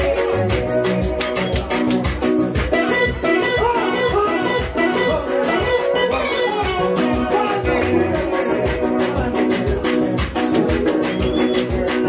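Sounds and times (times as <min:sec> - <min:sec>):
gospel dance music on keyboard: 0:00.0 - 0:12.0.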